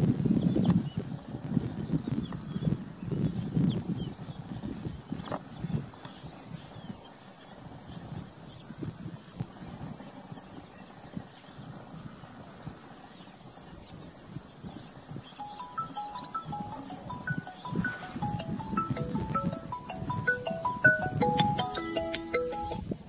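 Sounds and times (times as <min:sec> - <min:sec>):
faint chirps: 0:15.2 - 0:22.8
high-pitched insect buzz: 0:15.3 - 0:23.0.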